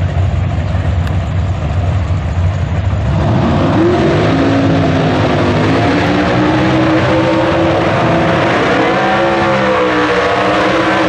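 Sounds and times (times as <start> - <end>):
racing car engine revving: 3.0 - 11.0.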